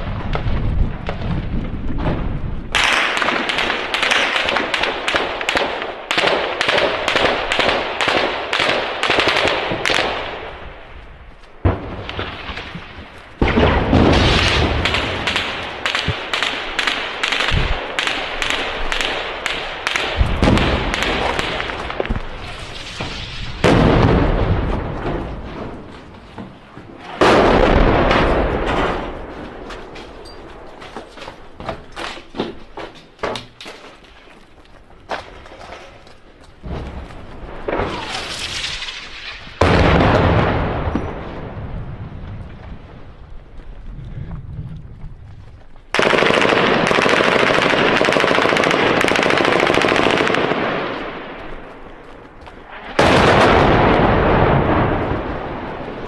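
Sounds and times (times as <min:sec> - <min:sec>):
heavy blasts with rumble: 0:00.0 - 0:05.5, 0:06.4 - 0:30.0, 0:36.6 - 0:48.0, 0:52.6 - 0:56.0
rapid gunshots: 0:02.7 - 0:10.5, 0:13.4 - 0:23.0, 0:45.9 - 0:51.1.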